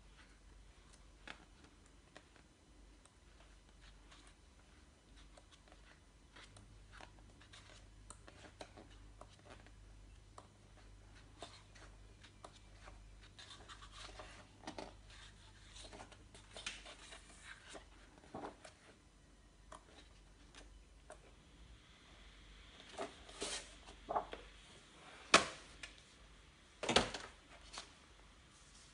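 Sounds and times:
paper pages turning: 0:11.2 - 0:19.0, 0:22.9 - 0:24.5.

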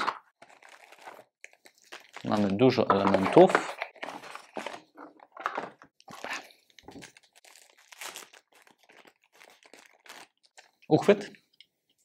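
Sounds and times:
packaging crinkling and rustling: 0:00.0 - 0:11.3.

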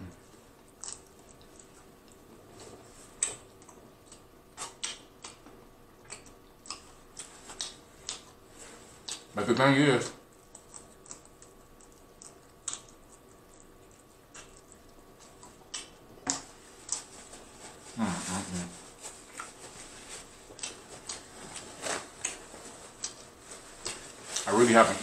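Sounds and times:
person chewing wet mouth clicks: 0:03.2 - 0:08.4, 0:09.0 - 0:09.3, 0:10.3 - 0:17.1, 0:20.5 - 0:21.2
person humming with enjoyment: 0:18.0 - 0:18.7.

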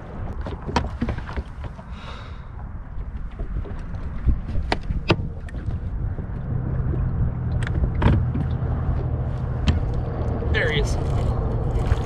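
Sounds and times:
wind rumble on microphone: 0:00.0 - 0:12.0
sharp clicks and knocks: 0:07.4 - 0:10.4.

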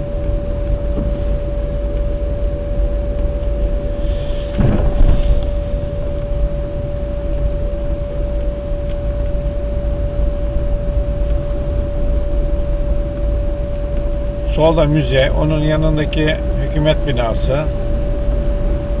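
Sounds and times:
engine and road rumble: 0:00.0 - 0:19.0
thin constant tone: 0:00.0 - 0:19.0.

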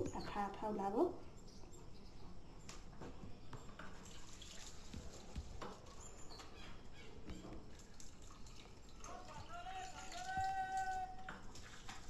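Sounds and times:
bowl clinking: 0:09.0 - 0:11.6.

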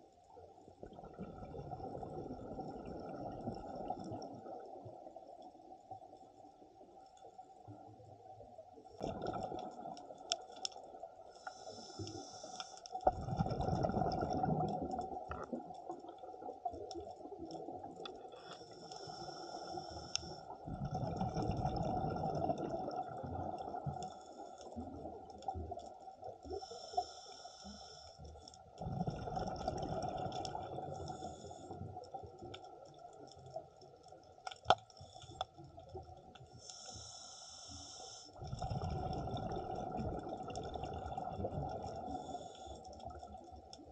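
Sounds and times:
exhaled bubbles rumbling: 0:00.8 - 0:05.2, 0:08.9 - 0:10.2, 0:13.0 - 0:18.3, 0:20.5 - 0:24.2, 0:28.7 - 0:33.8, 0:38.4 - 0:43.9
regulator hiss on inhale: 0:11.3 - 0:13.1, 0:18.4 - 0:20.6, 0:26.5 - 0:28.4, 0:30.9 - 0:31.9, 0:35.0 - 0:35.6, 0:36.5 - 0:38.5, 0:42.0 - 0:43.1.

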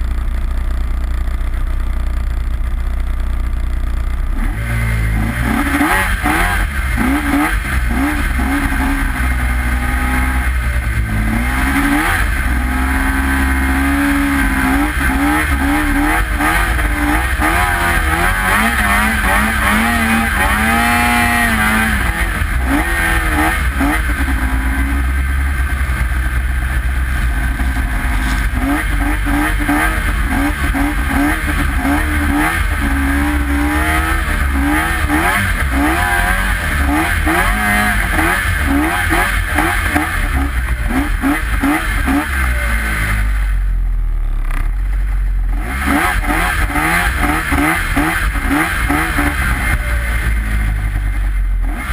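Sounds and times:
snowmobile engine revving: 0:04.3 - 0:43.6, 0:45.5 - 0:51.9.

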